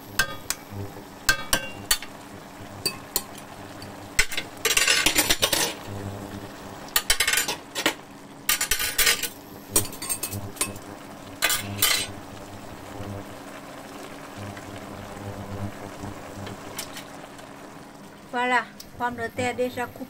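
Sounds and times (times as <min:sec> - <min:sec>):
utensil clinking in a wok: 0:04.2 - 0:05.8, 0:07.0 - 0:10.8
utensil scraping a wok: 0:04.2 - 0:05.9, 0:07.0 - 0:10.8, 0:11.4 - 0:12.2.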